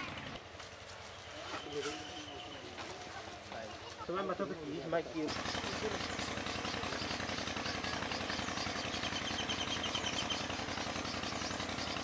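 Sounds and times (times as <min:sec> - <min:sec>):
motor running with rapid pulse: 0:05.2 - 0:12.0.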